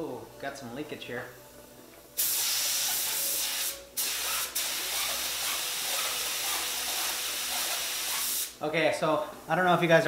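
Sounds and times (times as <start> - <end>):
spray gun hissing and sputtering: 2.2 - 8.6.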